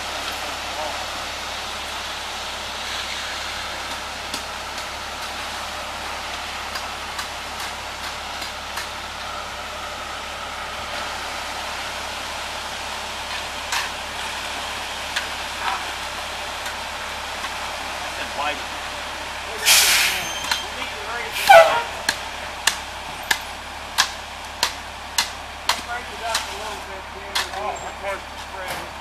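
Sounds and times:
wet concrete sliding down chute: 0.0s - 23.0s
concrete mixer truck running: 0.0s - 29.0s.

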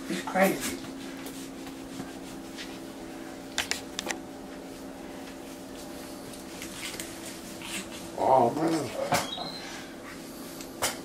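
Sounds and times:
steady low hum: 0.0s - 11.0s
towel rubbing wet fur: 0.6s - 3.3s.

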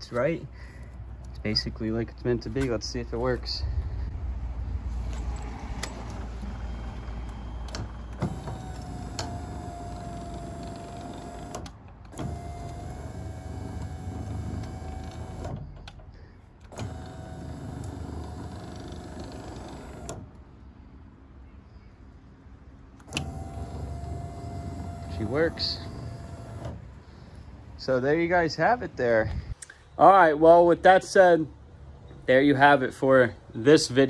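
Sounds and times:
motor click: 5.0s - 16.0s, 23.0s - 26.9s
electric motor whining: 5.8s - 15.5s, 16.7s - 20.2s, 23.0s - 26.9s.

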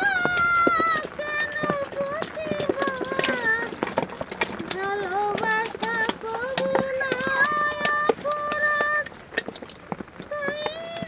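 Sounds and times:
woman singing: 0.0s - 3.8s, 4.8s - 9.1s, 10.3s - 11.0s.

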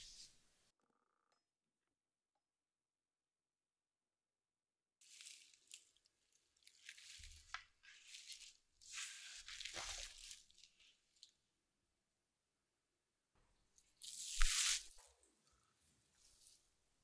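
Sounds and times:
cling film crinkling: 5.0s - 11.3s.

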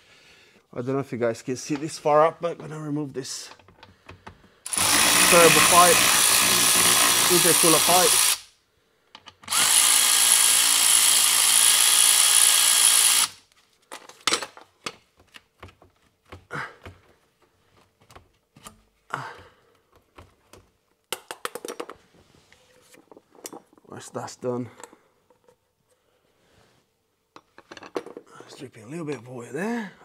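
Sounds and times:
cordless power tool running: 4.7s - 8.4s, 9.5s - 13.4s
clicks and knocks of hand work: 9.1s - 9.5s, 13.9s - 22.0s.

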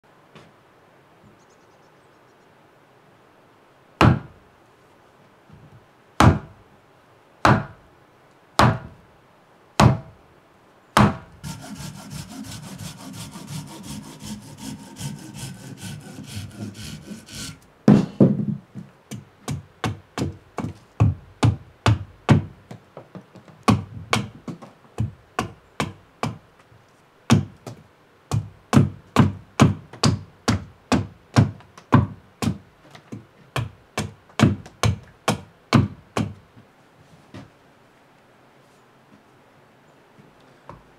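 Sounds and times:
axe chopping wood: 4.0s - 4.3s, 6.2s - 6.6s, 7.4s - 7.8s, 8.6s - 8.9s, 9.8s - 10.1s, 11.0s - 11.3s
wooden blows on axe back: 11.0s - 18.2s
rasping on wood: 11.4s - 17.6s.

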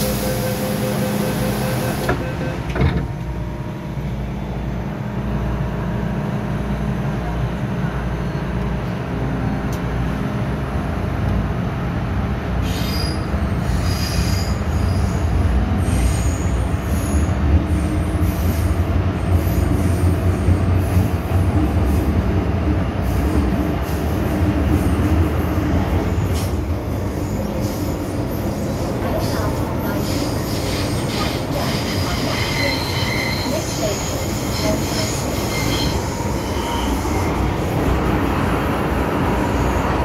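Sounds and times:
train wheels rumbling on rail: 0.0s - 40.0s
high wheel squeals: 12.6s - 17.3s, 27.1s - 37.6s.

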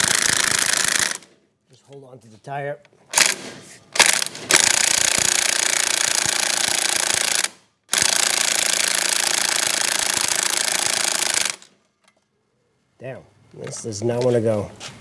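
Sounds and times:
impact wrench hammering: 0.0s - 1.2s, 4.0s - 11.6s.

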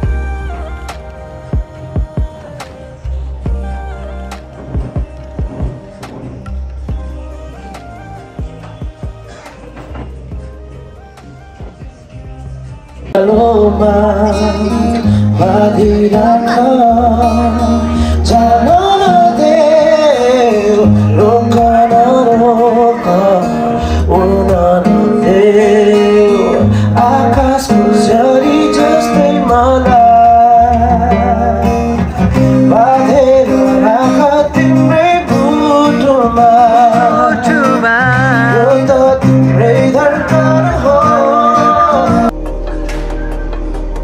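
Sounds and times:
deep bass notes: 0.0s - 19.4s, 24.0s - 44.0s
acoustic guitar strumming: 0.0s - 44.0s
man singing into microphone: 11.7s - 42.4s.

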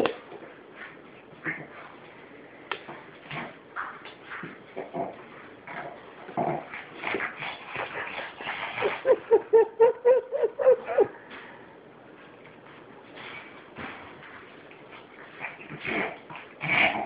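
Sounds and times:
dog whining: 8.8s - 11.1s.

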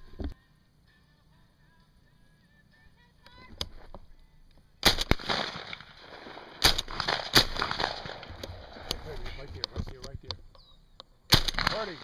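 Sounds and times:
shotgun shots with echo: 4.8s - 8.9s, 11.3s - 12.0s.

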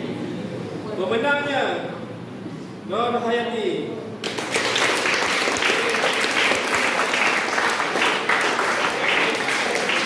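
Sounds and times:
group applauding: 4.2s - 10.0s.

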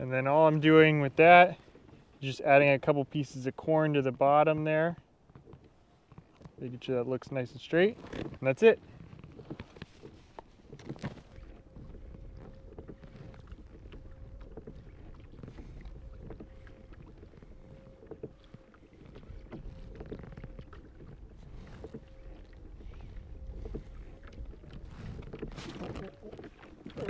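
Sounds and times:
water lapping against hull: 0.0s - 27.0s
wind rumbling on microphone: 7.8s - 27.0s.

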